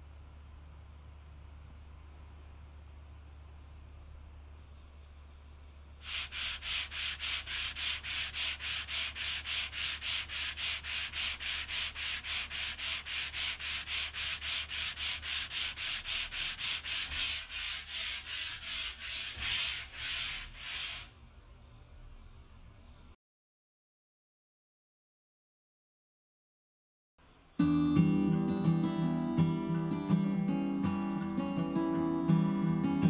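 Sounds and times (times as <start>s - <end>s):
sandpaper rasping on wood: 6.0s - 21.2s.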